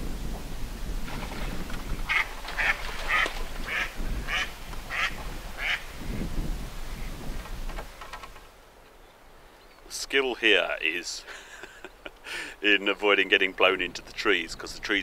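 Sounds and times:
duck quacking: 2.1s - 5.8s.

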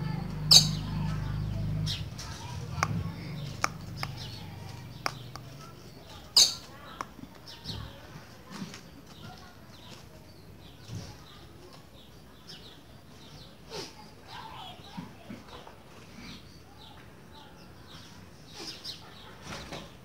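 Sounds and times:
bird chirps and call notes: 0.3s - 7.8s
sharp taps on wooden cage: 2.3s - 5.7s.

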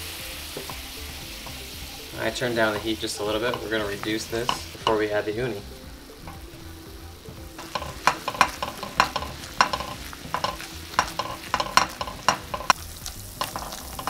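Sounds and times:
sauce sizzling: 0.0s - 14.0s
spoon scraping a metal pan: 2.6s - 5.0s, 7.6s - 12.8s, 13.4s - 14.0s.

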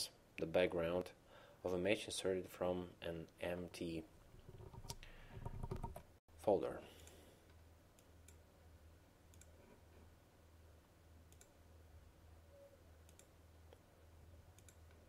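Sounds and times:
faint low hum: 0.1s - 15.0s
computer mouse clicks: 4.6s - 6.0s, 9.3s - 9.6s, 11.3s - 11.6s, 13.0s - 13.3s, 14.6s - 15.0s.

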